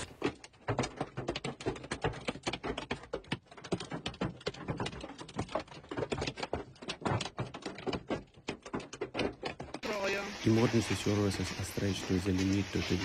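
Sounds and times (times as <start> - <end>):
hail pelting a car: 7.6 - 13.0.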